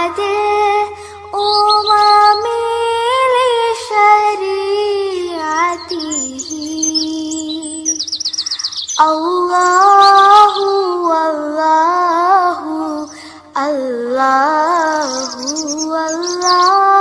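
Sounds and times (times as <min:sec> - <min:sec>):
voice singing long wordless notes: 0:00.0 - 0:17.0
bird-like chirps: 0:01.0 - 0:02.6, 0:05.3 - 0:11.3, 0:12.6 - 0:13.4, 0:14.6 - 0:17.0.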